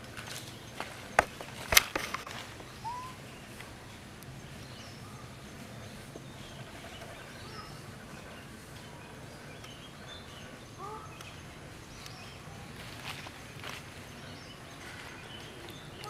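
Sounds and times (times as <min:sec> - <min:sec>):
outdoor background noise: 0:00.0 - 0:16.0
faint short chirping calls: 0:02.7 - 0:03.6.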